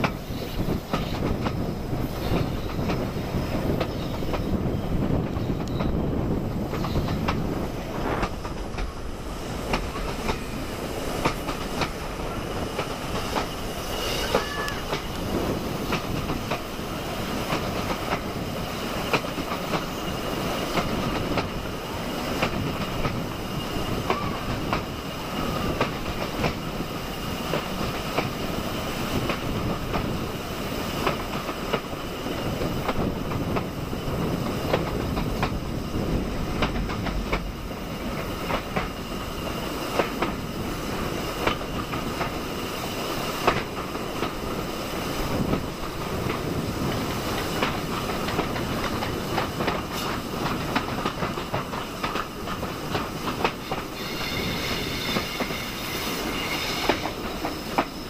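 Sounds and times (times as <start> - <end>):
train coaches rumbling: 0.0 - 58.0
wheels clicking over rail joints: 11.2 - 16.8, 29.2 - 53.9.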